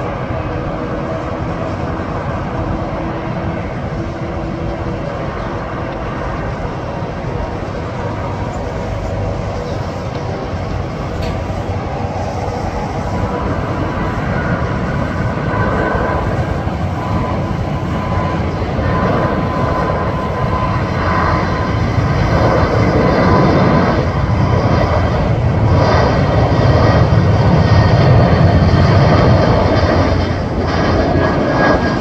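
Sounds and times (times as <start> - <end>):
jet engines roaring at takeoff: 0.0 - 32.0.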